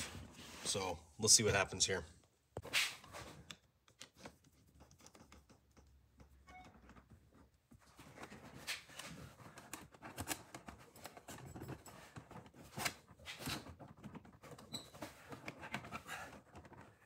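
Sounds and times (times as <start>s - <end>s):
hands clicking on plastic console: 3.4s - 7.4s, 13.7s - 17.0s.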